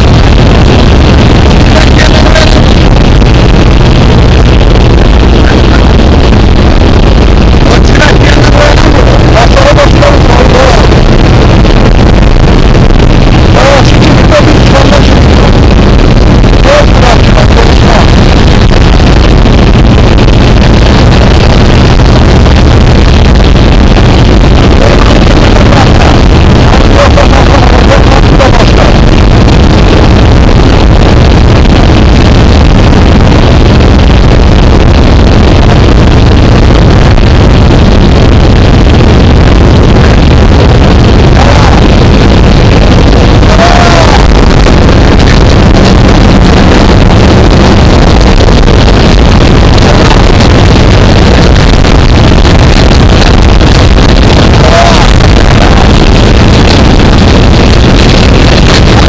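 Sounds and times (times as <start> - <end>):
propeller engine drone: 0.0 - 59.0
wind rushing on microphone: 0.0 - 59.0.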